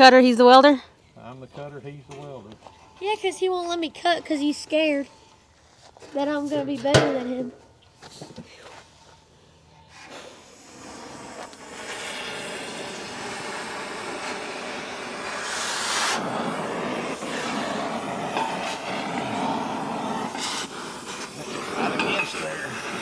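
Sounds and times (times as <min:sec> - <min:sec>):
cutting torch hissing: 0:09.9 - 0:23.0.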